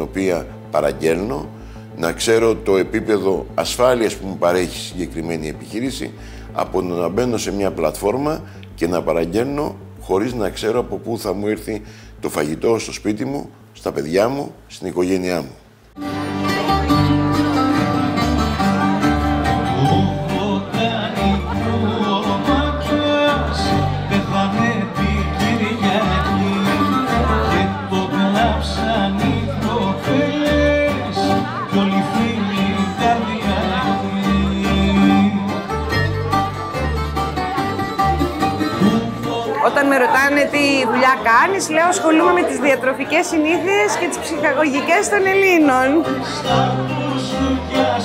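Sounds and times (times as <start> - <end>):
plucked double bass: 16.0 - 39.6, 45.5 - 48.0
bouzoukis plucking melody: 16.0 - 48.0
strummed acoustic guitar: 16.0 - 48.0.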